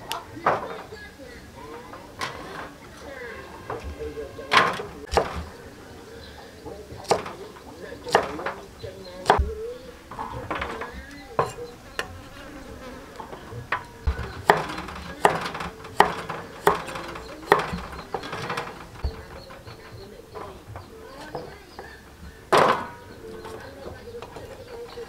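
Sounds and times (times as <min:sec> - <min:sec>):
cleaver chopping on wooden block: 0:14.1 - 0:18.5.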